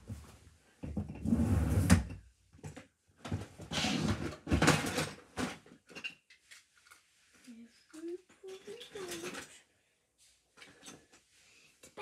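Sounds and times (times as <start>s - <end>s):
plastic toys rustling and clattering: 2.6s - 9.7s, 10.5s - 12.0s.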